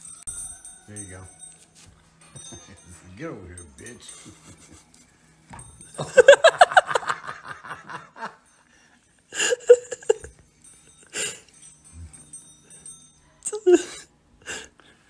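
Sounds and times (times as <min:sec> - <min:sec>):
person laughing hard: 0:06.0 - 0:08.4, 0:09.4 - 0:10.3, 0:13.5 - 0:14.6.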